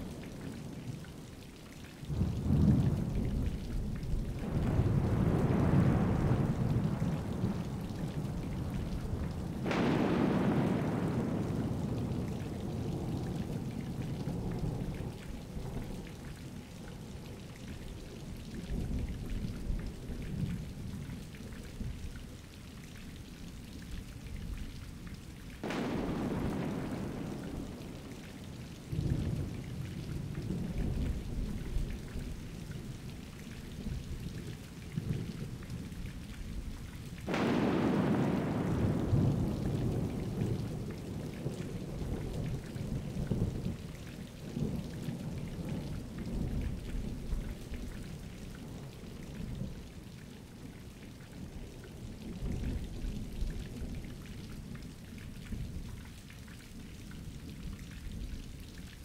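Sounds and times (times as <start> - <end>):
steady rain: 0.0 - 59.0
thunder rumbling: 2.1 - 17.8, 25.6 - 33.1, 37.2 - 50.0
sharp thunderclap: 9.6 - 12.3, 25.6 - 28.2, 37.2 - 40.9.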